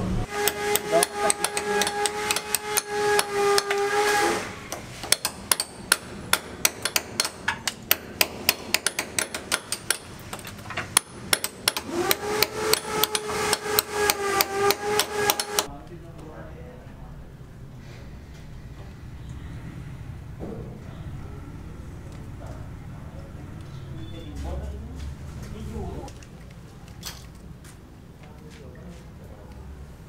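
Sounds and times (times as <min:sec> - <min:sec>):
steady pitched hum: 0:00.0 - 0:15.7
hammer striking chisel on tiles: 0:00.3 - 0:15.7.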